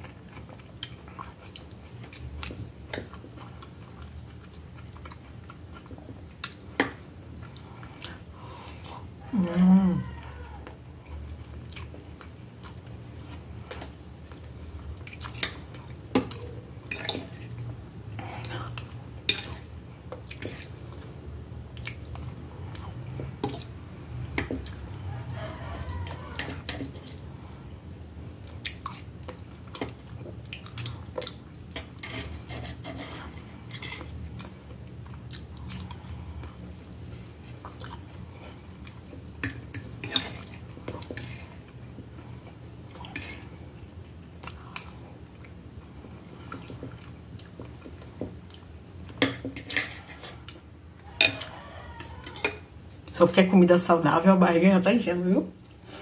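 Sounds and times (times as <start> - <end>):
person chewing food: 0.0 - 53.1
cutlery scraping a plate: 31.8 - 34.1, 49.2 - 50.4, 51.2 - 51.5.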